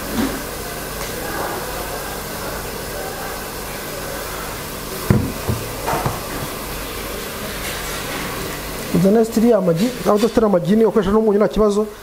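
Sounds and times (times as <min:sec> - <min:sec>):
bottle knocking on steel worktop: 0:05.1 - 0:06.5.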